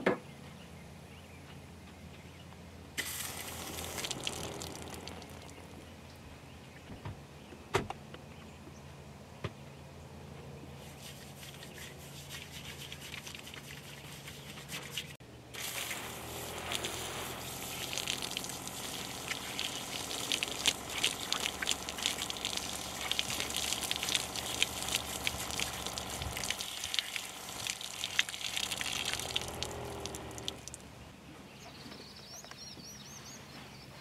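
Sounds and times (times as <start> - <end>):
water spraying from shower head: 3.0 - 5.5, 15.6 - 30.8
water splashing on ground: 3.0 - 5.8, 14.9 - 30.9.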